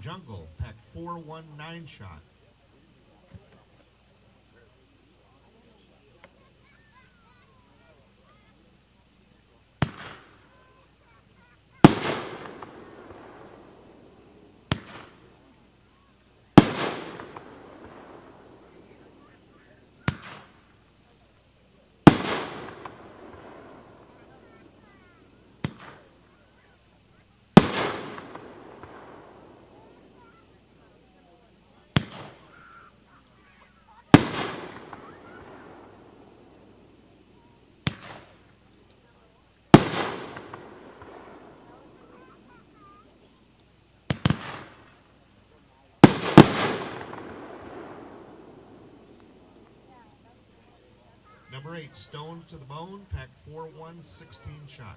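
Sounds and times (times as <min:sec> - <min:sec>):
firework bang with echo: 0:09.8 - 0:10.8, 0:11.8 - 0:15.3, 0:16.6 - 0:20.7, 0:22.1 - 0:26.1, 0:27.6 - 0:30.5, 0:31.9 - 0:32.9, 0:34.1 - 0:36.8, 0:37.4 - 0:38.4, 0:39.8 - 0:43.1, 0:44.1 - 0:45.0, 0:46.0 - 0:50.1.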